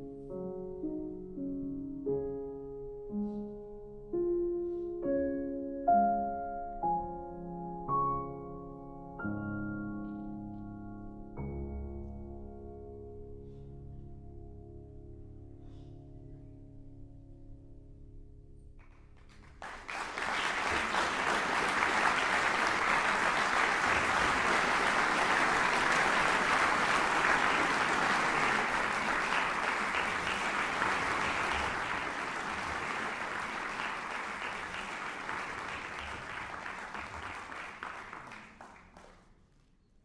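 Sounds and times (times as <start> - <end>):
piano notes: 0.0 - 17.8
audience applause: 19.3 - 39.3.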